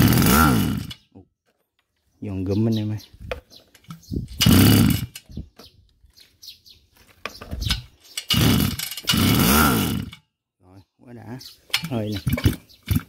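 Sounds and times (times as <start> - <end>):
starter rope pulled: 0.0 - 1.0, 3.7 - 5.4, 7.0 - 10.2, 11.7 - 13.0
engine cranking: 0.0 - 1.1, 3.7 - 5.4, 7.5 - 10.2, 11.7 - 13.0.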